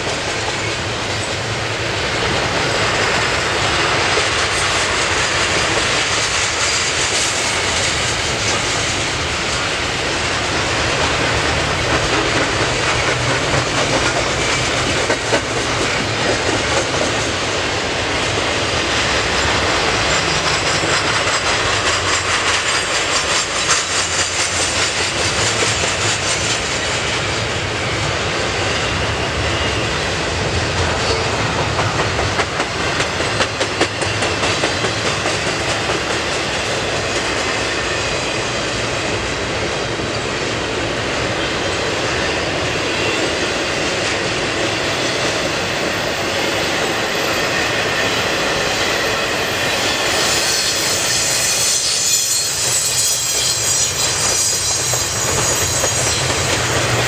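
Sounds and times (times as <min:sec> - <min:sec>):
wheels clacking over rail joints: 0:00.0 - 0:27.2, 0:30.7 - 0:40.1
freight train rumble and rattle: 0:00.0 - 0:57.0.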